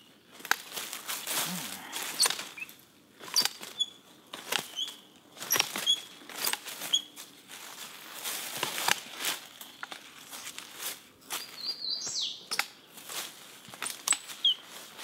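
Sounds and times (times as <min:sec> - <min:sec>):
branches and leaves rustling: 0:00.0 - 0:15.0
loppers snipping stems: 0:01.7 - 0:06.7.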